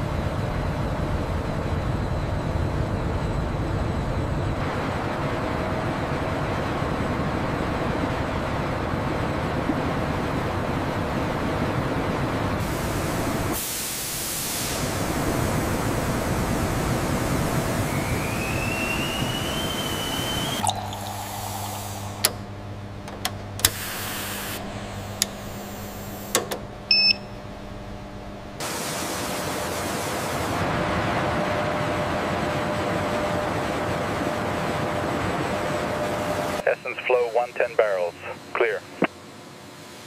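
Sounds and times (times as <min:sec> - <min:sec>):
analyser low hum: 0:00.0 - 0:28.7, 0:30.4 - 0:40.0
industrial hum: 0:00.0 - 0:40.0
rising whine: 0:15.7 - 0:26.3
oil rushing into steel tank: 0:20.4 - 0:22.5.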